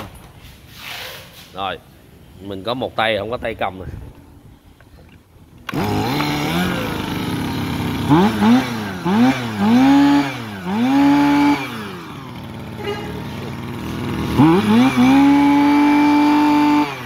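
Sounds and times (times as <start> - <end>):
brush cutter engine revving: 5.6 - 17.0.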